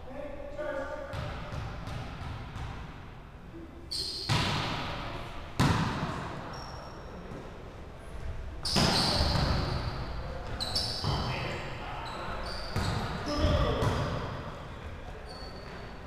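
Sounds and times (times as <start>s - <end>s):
shoe squeaks: 3.9s - 4.4s, 6.5s - 7.2s, 8.6s - 14.0s, 15.2s - 16.0s
volleyball hits echoing: 4.2s - 6.5s.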